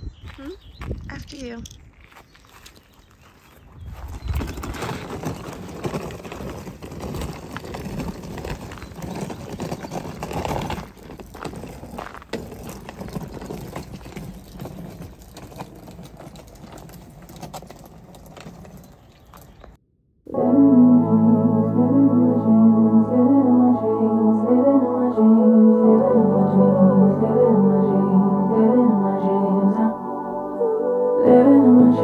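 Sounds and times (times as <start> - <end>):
suitcase wheels clattering on stone: 4.1 - 19.8.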